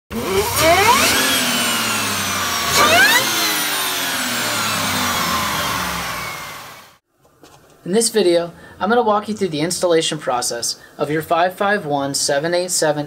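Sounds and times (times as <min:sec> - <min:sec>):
engine revving: 0:00.1 - 0:07.0.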